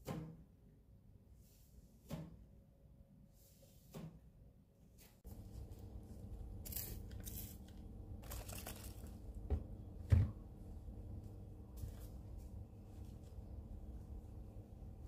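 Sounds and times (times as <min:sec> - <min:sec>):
low steady hum: 0:04.6 - 0:15.0.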